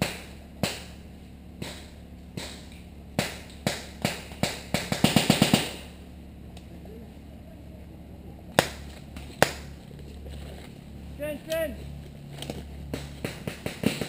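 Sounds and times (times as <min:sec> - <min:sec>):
airsoft guns firing: 0:00.0 - 0:01.0, 0:01.6 - 0:06.0, 0:08.5 - 0:09.8, 0:12.9 - 0:14.0.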